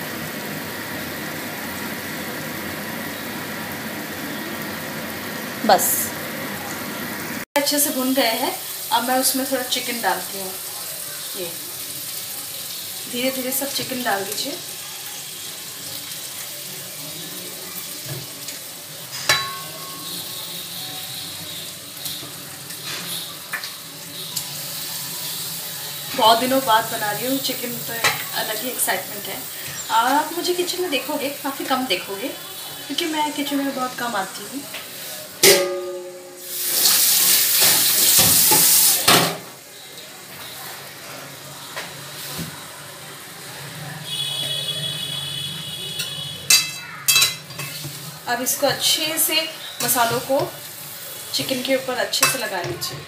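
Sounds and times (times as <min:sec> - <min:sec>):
chicken sizzling in pan: 0:00.0 - 0:53.0
metallic clank: 0:35.4 - 0:36.4.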